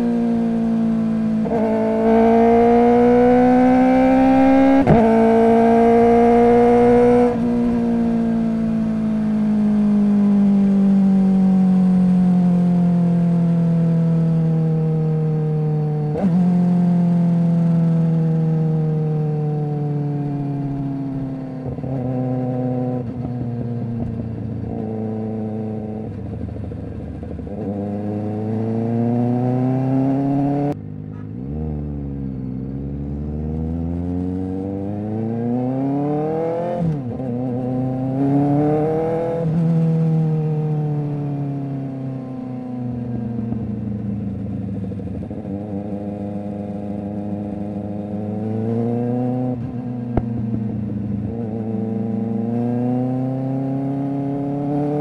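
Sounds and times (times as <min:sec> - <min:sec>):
motorcycle engine revving through gears: 0:00.0 - 0:55.0.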